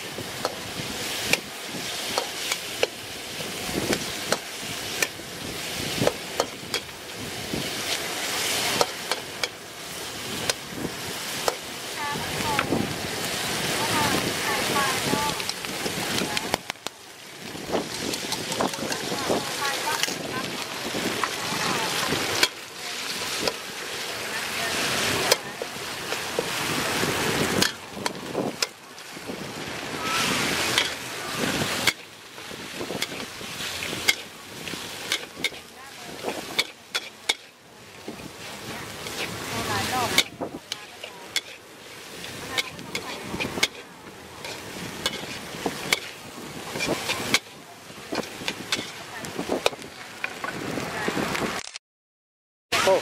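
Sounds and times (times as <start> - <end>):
oil sizzling in wok: 0.0 - 51.7
metal ladle scraping wok: 0.2 - 16.6, 17.7 - 29.3, 30.2 - 50.6
metal spatula scraping pan: 6.0 - 7.0, 30.6 - 31.0, 31.7 - 32.1, 32.9 - 37.6, 39.0 - 41.6, 42.2 - 47.5, 48.2 - 49.0.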